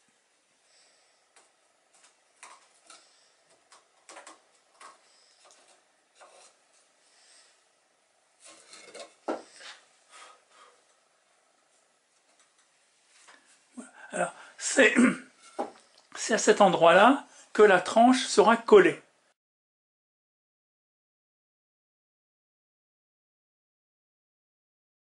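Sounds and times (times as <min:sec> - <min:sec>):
wood sliding on wooden board: 0:04.8 - 0:06.6.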